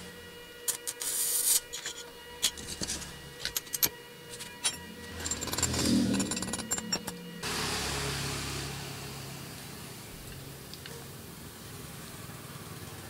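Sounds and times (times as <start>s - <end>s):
metal scraping: 1.4s - 7.5s.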